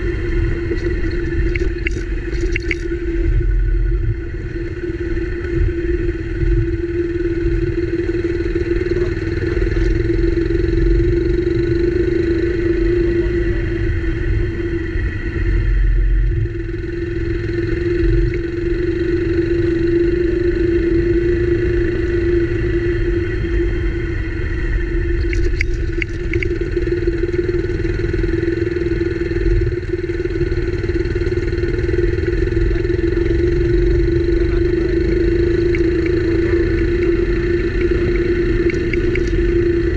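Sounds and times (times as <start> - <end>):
motorcycle engine running: 0.0 - 39.9
wind and dirt road rumble: 0.0 - 39.9
light ticks: 0.8 - 3.0, 25.2 - 26.6, 35.6 - 36.2, 38.6 - 39.4.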